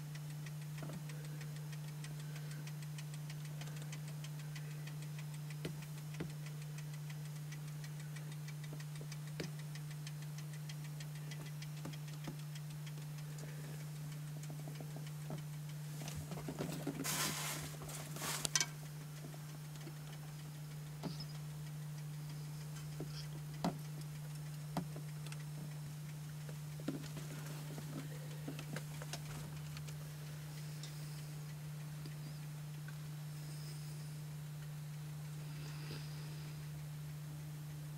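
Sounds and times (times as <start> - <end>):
faint clicks: 0.0 - 37.8
steady low hum: 0.0 - 37.9
rustling scrape: 17.0 - 18.5.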